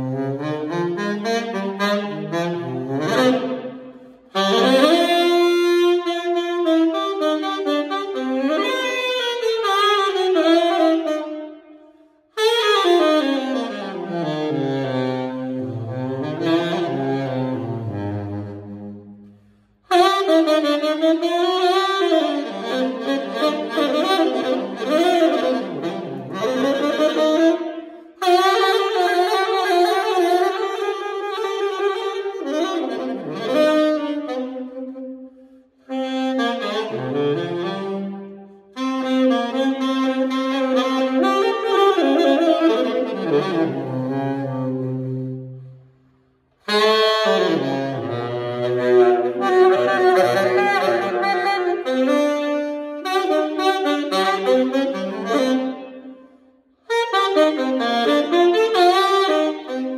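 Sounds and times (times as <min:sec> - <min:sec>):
solo tenor saxophone: 0:00.0 - 0:59.9.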